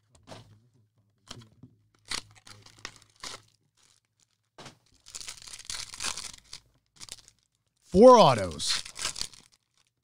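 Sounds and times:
foil wrappers crinkling and tearing: 2.0s - 7.8s, 8.7s - 10.0s.

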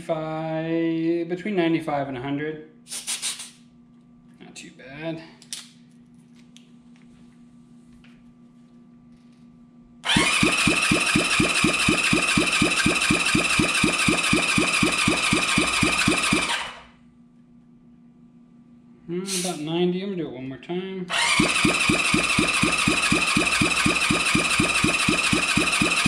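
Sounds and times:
starter cranking engine: 10.0s - 16.8s, 21.1s - 26.0s.

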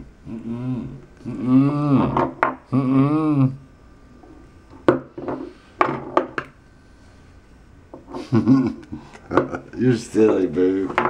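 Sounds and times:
man humming with closed mouth: 0.0s - 3.7s
man grunting: 0.3s - 3.6s.

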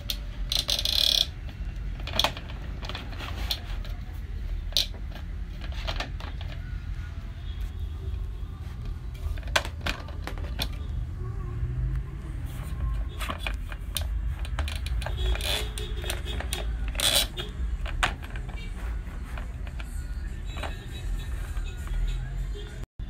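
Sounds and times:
plastic clicks and knocks: 0.0s - 4.0s, 9.2s - 10.9s, 13.1s - 18.7s.

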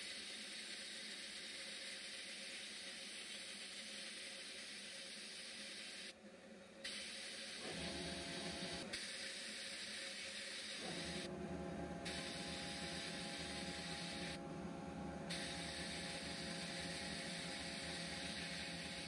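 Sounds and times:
steady hum: 5.4s - 19.0s
sandblaster nozzle hissing: 12.0s - 14.4s, 15.3s - 19.0s.

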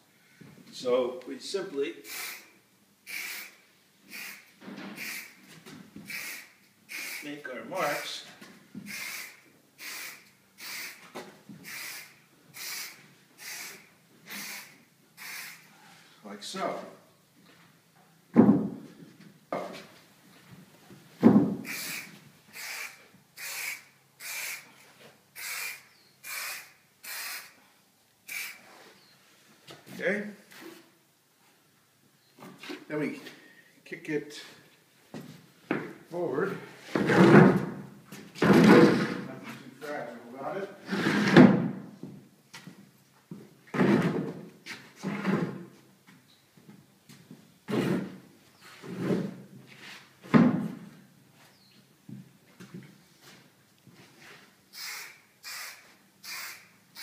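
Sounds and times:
aerosol paint can spraying: 2.0s - 2.5s, 3.1s - 5.4s, 6.1s - 7.3s, 8.8s - 15.7s, 21.6s - 24.7s, 25.4s - 27.6s, 28.3s - 28.8s, 54.7s - 57.0s
wooden board thudding on floor: 18.3s - 18.8s, 21.2s - 21.6s
wooden board shoved along floor: 21.2s - 21.7s, 36.8s - 37.8s, 38.4s - 39.3s, 40.8s - 41.9s, 47.7s - 48.2s
work-boot footsteps on subfloor: 35.1s - 36.0s.

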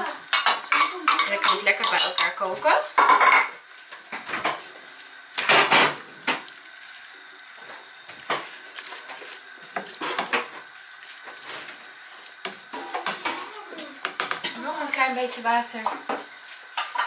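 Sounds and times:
spatula scraping and knocking a pan: 8.1s - 11.8s.

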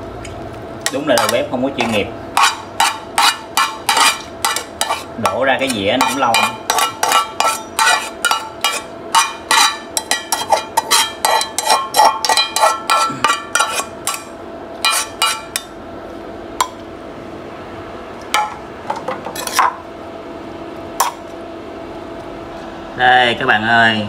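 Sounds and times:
metal spatula scraping frying pan: 0.9s - 15.6s, 19.3s - 19.7s.

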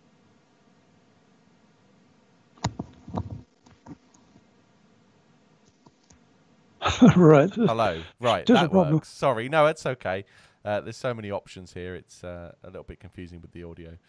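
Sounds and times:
small ticks: 2.5s - 4.5s, 5.6s - 6.3s
microphone handling knocks and rubbing: 2.6s - 4.0s
quiet line noise: 6.8s - 14.0s.

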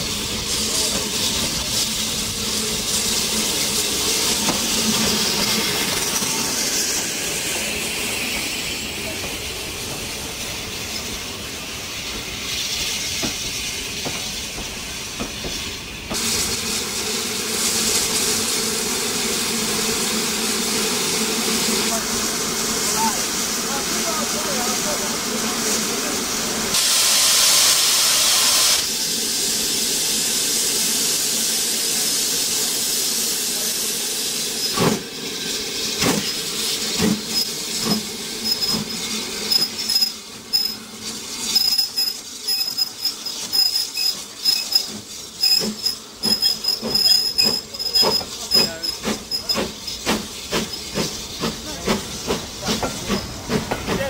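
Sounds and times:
steam locomotive hissing: 0.0s - 54.0s
faint high squeal: 41.5s - 50.0s.

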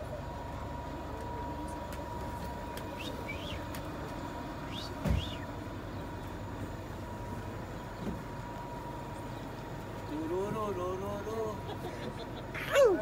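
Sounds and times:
vehicle traffic rumble: 0.0s - 13.0s
dull thump: 5.0s - 5.4s.

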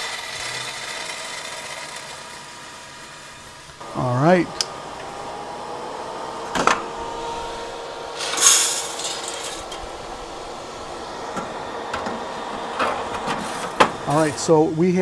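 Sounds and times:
coffee beans pouring into metal bowl: 0.0s - 2.9s, 8.1s - 10.0s
roaster humming: 0.0s - 15.0s.

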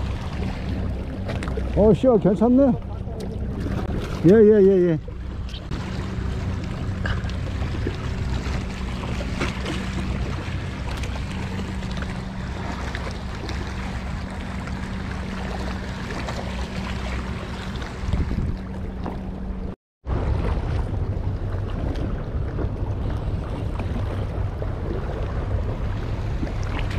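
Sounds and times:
seawater washing among rocks: 0.0s - 19.3s
low engine drone: 0.0s - 26.9s
wind on microphone: 17.6s - 19.1s.

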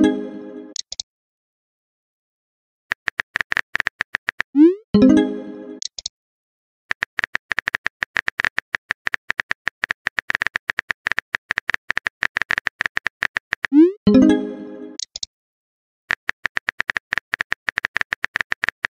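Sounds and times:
keyboard typing clicks: 0.7s - 1.0s, 2.9s - 4.6s, 5.8s - 6.1s, 6.9s - 14.0s, 15.0s - 15.3s, 16.1s - 18.9s
message chime: 4.6s - 5.8s, 13.8s - 15.0s.

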